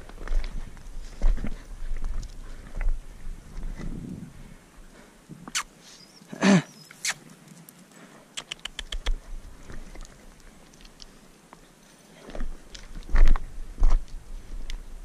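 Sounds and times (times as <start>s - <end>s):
footsteps on stony ground: 0.0s - 5.2s, 8.6s - 15.0s
loose stones clicking: 8.4s - 9.2s.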